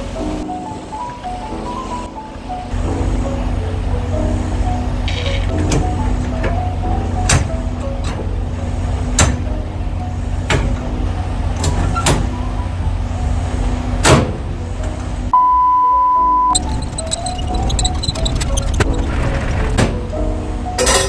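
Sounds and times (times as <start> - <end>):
low engine rumble: 0.0 - 15.4, 16.6 - 20.9
test tone beep: 15.3 - 19.0
metal handle clanks: 20.8 - 21.0.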